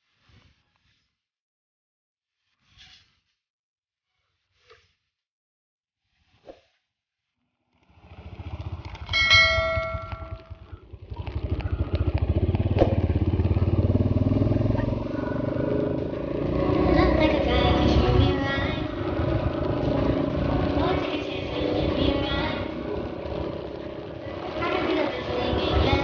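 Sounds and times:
vehicle engine starting and running: 7.8 - 26.0.

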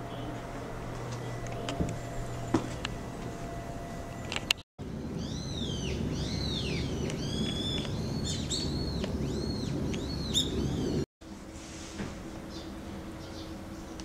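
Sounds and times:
songbird calling: 5.0 - 11.0.

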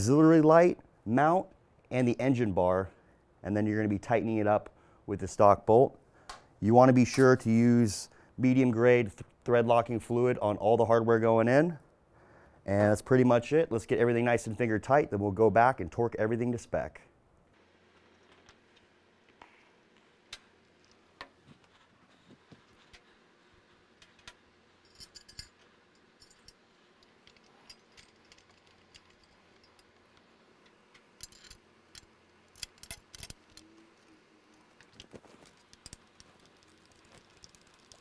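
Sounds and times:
metal hardware clinking: 24.0 - 30.0, 30.6 - 34.1.

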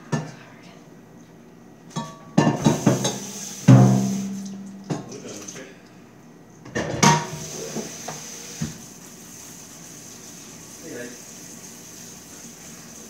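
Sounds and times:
loud metal clang: 3.7 - 5.1.

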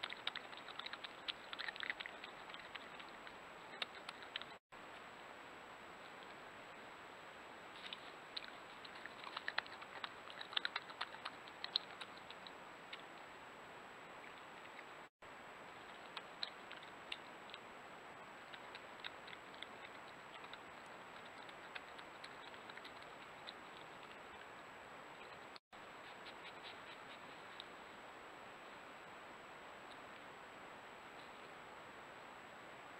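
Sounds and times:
animal scrabbling through bark chips: 0.0 - 4.6, 7.8 - 13.1, 18.5 - 24.4.

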